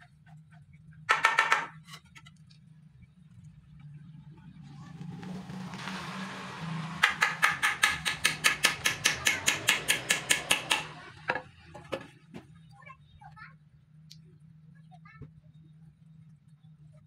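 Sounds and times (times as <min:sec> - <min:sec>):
hammer tapping metal: 0:06.9 - 0:11.4.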